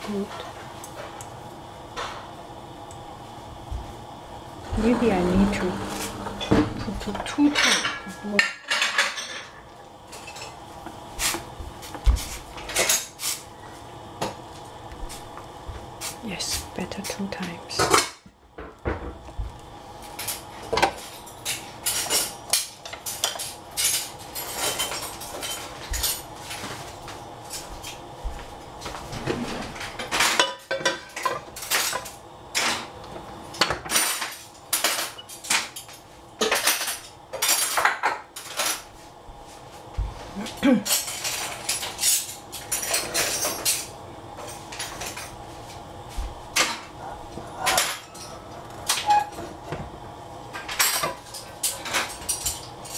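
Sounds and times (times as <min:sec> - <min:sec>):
kitchenware clinking and clattering: 0:04.6 - 0:10.6, 0:17.7 - 0:19.2, 0:20.1 - 0:26.8, 0:29.0 - 0:32.9, 0:33.6 - 0:38.9, 0:40.5 - 0:45.4, 0:47.5 - 0:49.8, 0:50.5 - 0:52.9.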